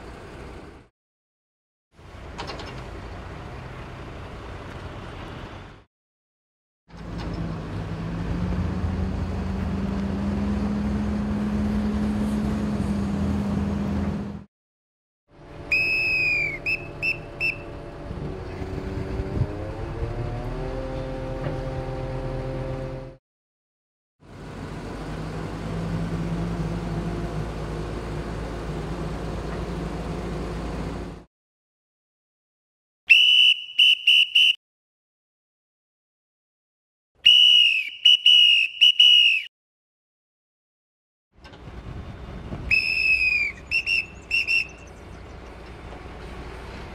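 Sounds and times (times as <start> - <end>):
crane engine running: 0.0 - 0.9, 2.0 - 5.8, 6.9 - 14.5, 15.4 - 23.2, 24.2 - 31.3, 41.4 - 46.9
whistle signal blasts: 15.7 - 17.7, 33.1 - 34.6, 37.2 - 39.5, 42.7 - 44.8.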